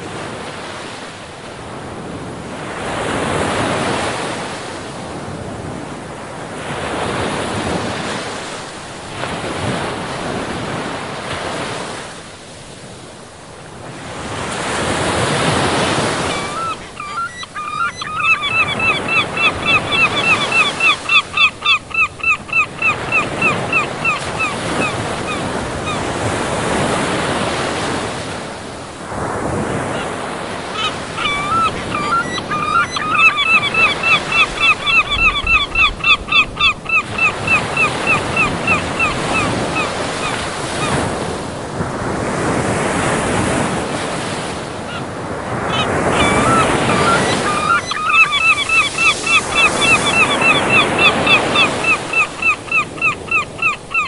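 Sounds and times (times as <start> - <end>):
wind: 0.0 - 54.0
bird calling rapidly: 16.2 - 26.0, 30.8 - 41.0, 45.6 - 54.0.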